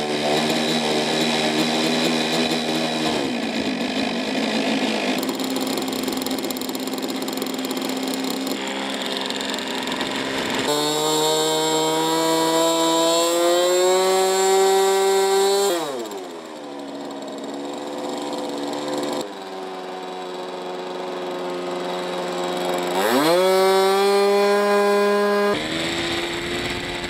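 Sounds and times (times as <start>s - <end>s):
model aircraft engine running: 0.0s - 27.0s.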